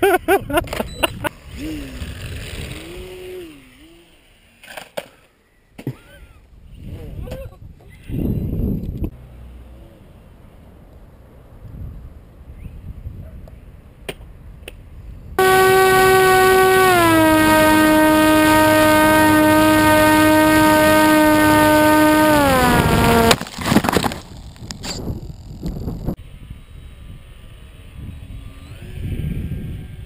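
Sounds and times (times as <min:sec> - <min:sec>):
model plane motor whining: 0:15.4 - 0:23.4.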